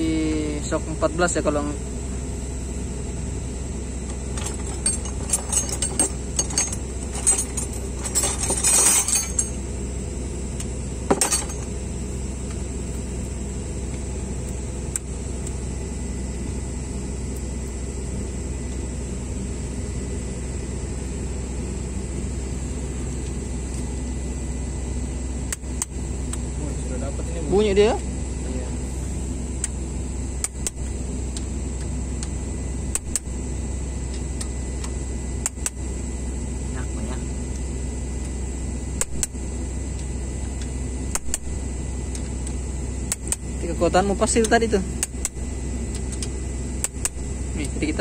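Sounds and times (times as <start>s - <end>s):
low machine hum: 0.0s - 48.0s
metal hand tools clinking: 4.4s - 9.6s, 11.1s - 11.7s.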